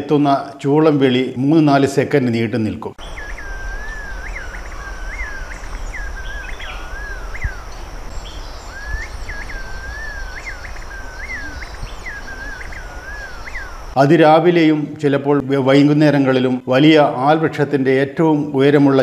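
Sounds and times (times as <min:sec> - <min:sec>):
pigeon melodious whistling: 0:03.0 - 0:14.0.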